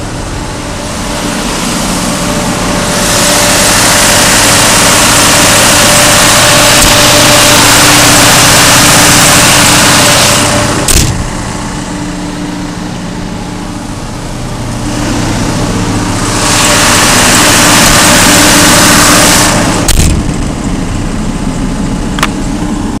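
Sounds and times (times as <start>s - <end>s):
diesel generator running: 0.0s - 23.0s
door slam: 10.8s - 11.3s, 19.9s - 20.4s.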